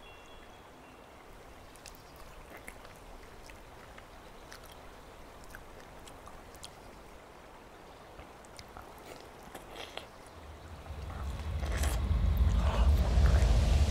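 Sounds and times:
faint steady hiss: 0:00.0 - 0:13.9.

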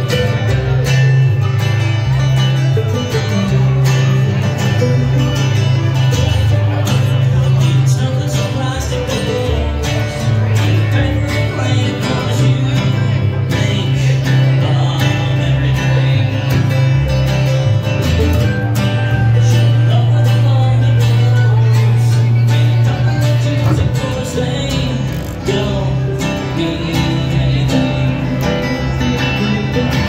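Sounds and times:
mandolin: 0:00.0 - 0:30.0
plucked upright bass: 0:00.0 - 0:30.0
strummed acoustic guitar: 0:00.0 - 0:30.0.

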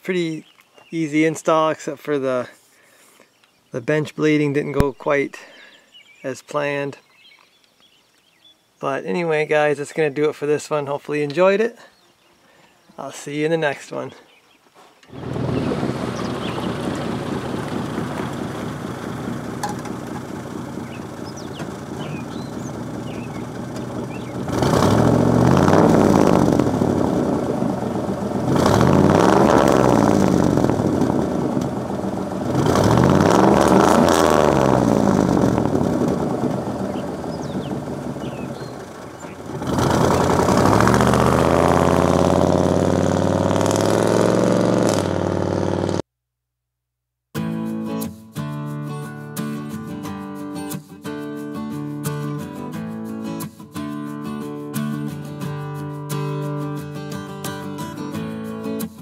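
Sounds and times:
truck engine driving past: 0:15.1 - 0:46.0.

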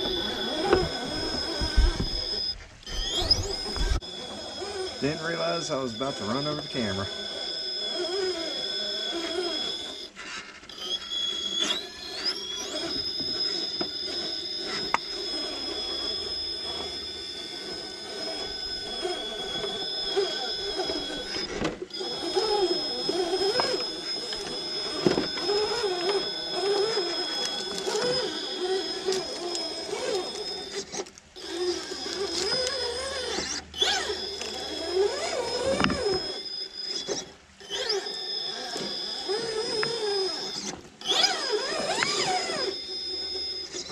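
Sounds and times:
electric motor and gears whining: 0:00.0 - 0:43.9.

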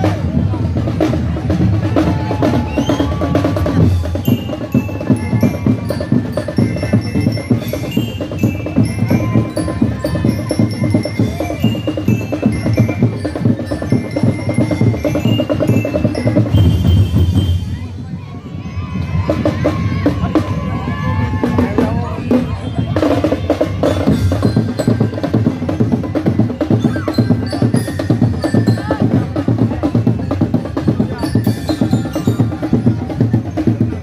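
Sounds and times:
fast drum beat: 0:00.0 - 0:17.7, 0:21.3 - 0:34.0
bell-lyre notes ringing: 0:04.1 - 0:17.6.

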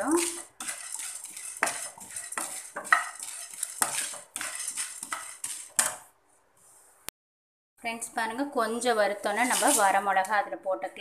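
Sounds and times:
lentils scraping in a frying pan: 0:00.0 - 0:06.0, 0:09.1 - 0:10.0.

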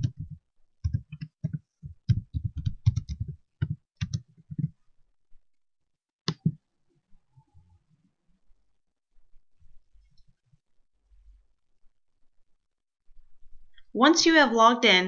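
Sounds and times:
typing on computer keyboard: 0:00.0 - 0:04.7.

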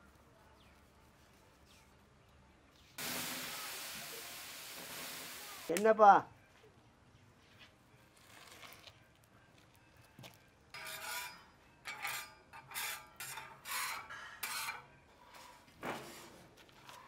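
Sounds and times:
metal spatula scraping griddle: 0:10.8 - 0:15.6.

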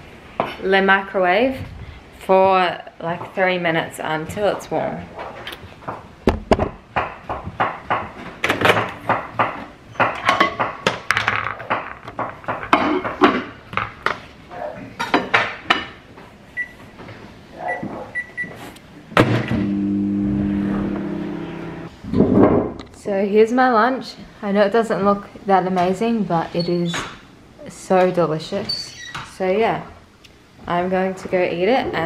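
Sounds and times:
knocks and clatter of plate: 0:05.8 - 0:14.2
microwave oven humming: 0:19.2 - 0:21.9.

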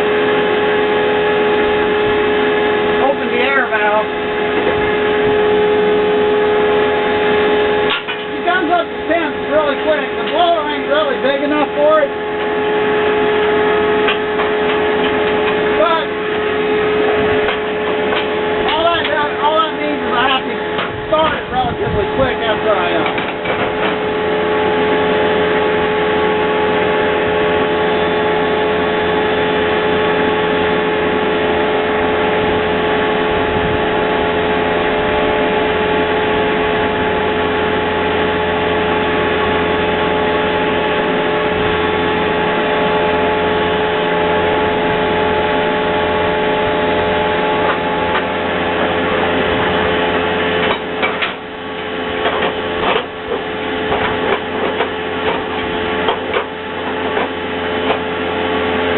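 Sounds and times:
generator engine running: 0:00.0 - 0:58.9
steady whine: 0:00.0 - 0:58.9
knocks and clatter: 0:23.0 - 0:24.0, 0:52.2 - 0:58.1.

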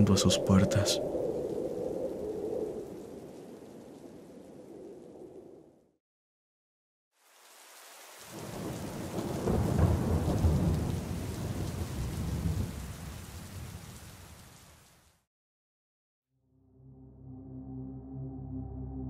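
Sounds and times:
rain falling: 0:00.0 - 0:05.8, 0:07.2 - 0:15.3
rolling thunder: 0:08.3 - 0:14.1.

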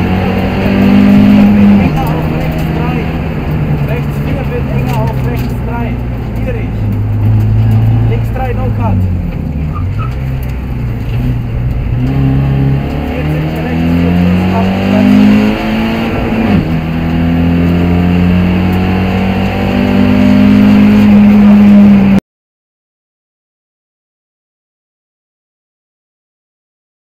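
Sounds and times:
car engine accelerating: 0:00.0 - 0:22.2.

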